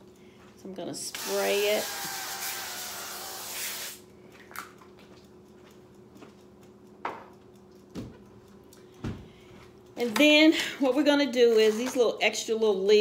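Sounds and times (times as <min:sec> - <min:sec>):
oil spray hissing: 0:01.2 - 0:04.0.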